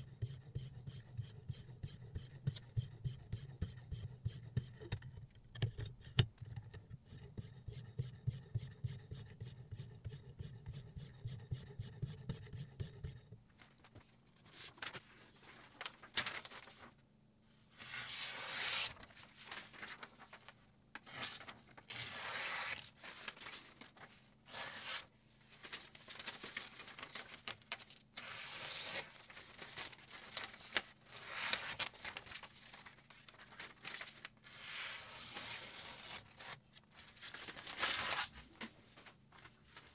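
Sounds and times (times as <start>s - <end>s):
knife slicing paper: 17.8s - 19.1s, 21.0s - 23.5s, 24.5s - 25.1s, 28.2s - 29.8s, 31.1s - 32.2s.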